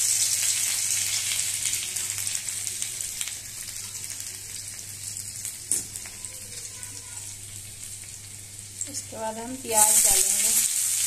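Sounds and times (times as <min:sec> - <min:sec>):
ginger sizzling in hot oil: 0:00.0 - 0:11.0.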